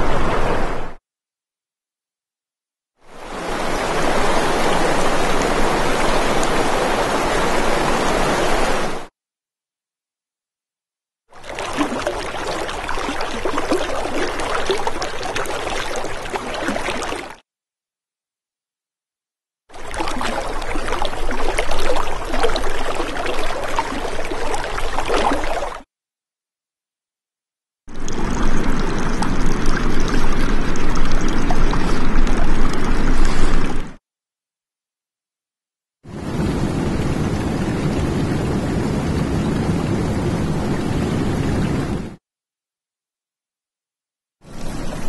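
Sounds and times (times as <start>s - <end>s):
water trickling and gurgling: 11.4s - 17.4s, 19.7s - 25.8s, 27.9s - 34.0s.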